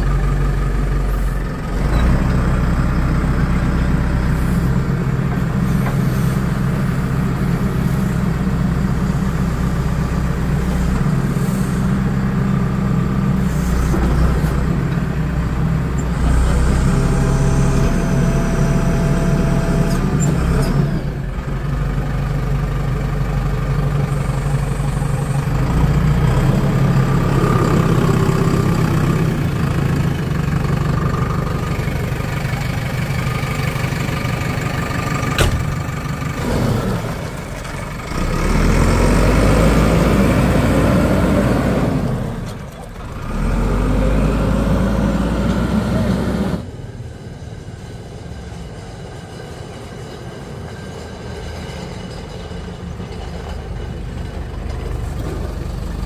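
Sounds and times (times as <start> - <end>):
faint engine whine: 0.0 - 38.3
diesel engine running: 0.0 - 49.8, 52.0 - 56.0.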